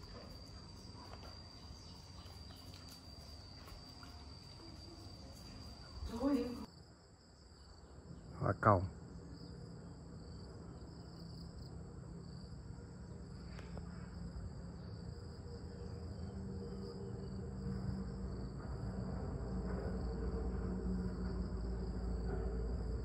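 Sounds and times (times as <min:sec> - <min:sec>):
insects trilling: 0:00.0 - 0:23.0
low rumble: 0:16.2 - 0:23.0.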